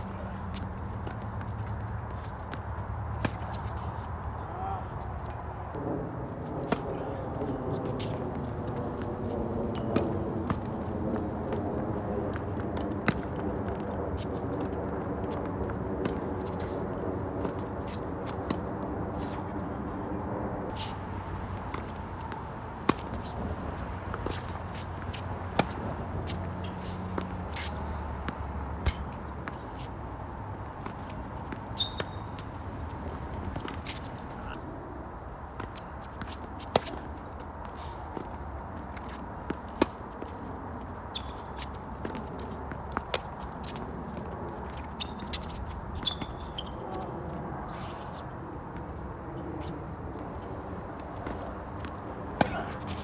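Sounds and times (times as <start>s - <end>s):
tennis ball bouncing: 0.0s - 4.2s, 12.4s - 16.7s, 21.5s - 30.0s, 30.6s - 34.4s, 35.5s - 47.0s
shoes scuffing on court: 0.0s - 5.4s, 6.4s - 19.6s, 20.7s - 34.6s, 35.5s - 53.0s
tennis racket hitting ball: 21.7s - 29.6s, 35.6s - 38.3s.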